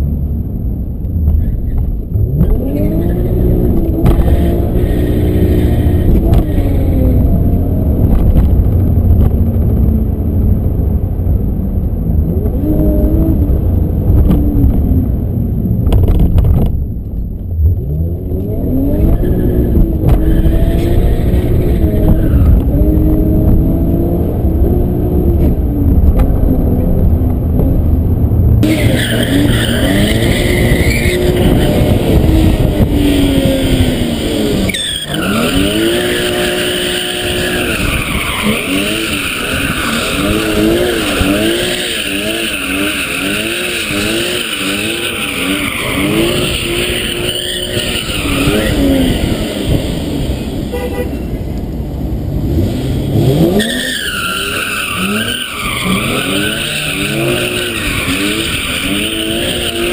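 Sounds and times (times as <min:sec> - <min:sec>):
car engine revving hard: 0:02.3 - 0:09.7, 0:17.7 - 0:27.0, 0:28.6 - 0:51.2, 0:52.2 - 0:59.9
tyres squealing: 0:28.6 - 0:31.9, 0:34.7 - 0:49.4, 0:53.6 - 0:59.9.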